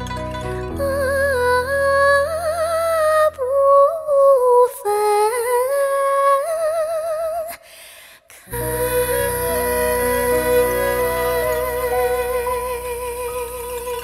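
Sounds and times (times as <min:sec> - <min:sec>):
woman singing with vibrato: 0:00.7 - 0:07.7, 0:08.3 - 0:14.0
backing music: 0:08.5 - 0:14.0.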